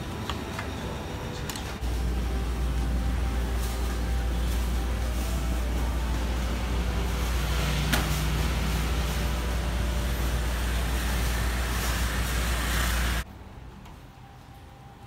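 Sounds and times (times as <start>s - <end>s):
constant low hum: 0.0s - 15.0s
scooters passing on wet road: 7.3s - 13.2s.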